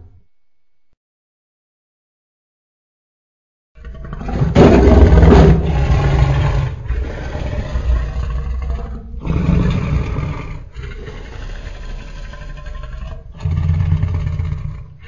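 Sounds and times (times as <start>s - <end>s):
deep rumbling growls: 3.8s - 15.0s
loud dinosaur roar: 3.8s - 15.0s.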